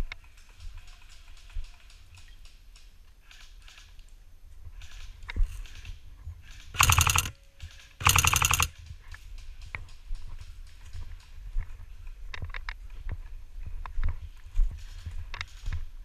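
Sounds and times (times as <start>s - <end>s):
airsoft gun full-auto bursts: 6.7s - 8.7s.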